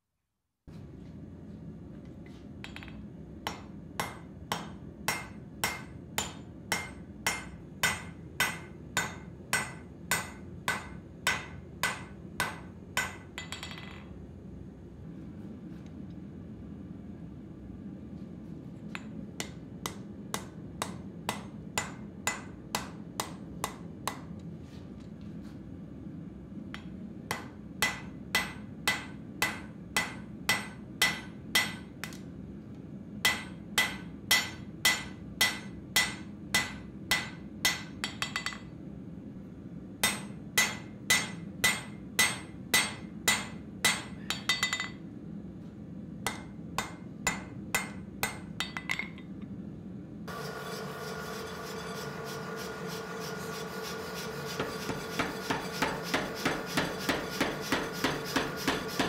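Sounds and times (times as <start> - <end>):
steady low hum: 0.7 - 59.0
hammer ringing on anvil: 26.8 - 31.9, 33.3 - 38.7, 40.0 - 45.0, 54.1 - 59.0.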